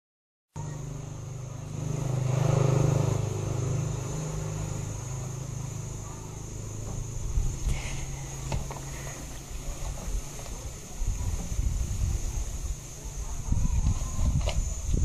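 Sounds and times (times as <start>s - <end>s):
vehicle passing: 0.6s - 9.8s
steady low hum: 0.6s - 15.0s.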